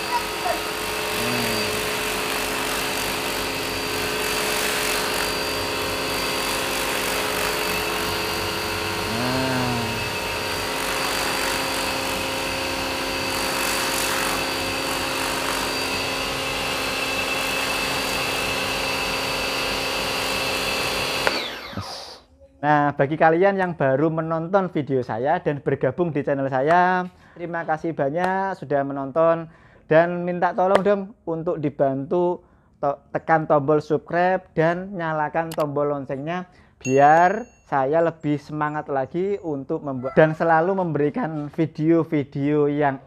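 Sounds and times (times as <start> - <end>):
pressure washer pump motor whining: 0.0 - 22.2.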